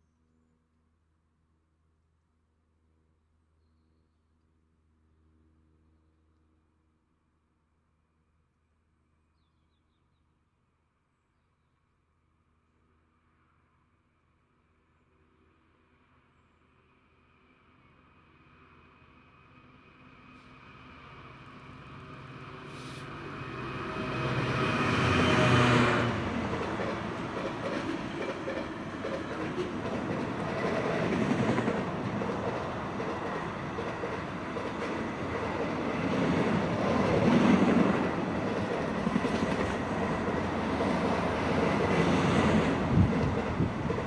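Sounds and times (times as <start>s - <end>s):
diesel locomotive engine passing: 14.6s - 44.0s
train wheels rumbling and clicking: 26.1s - 44.0s.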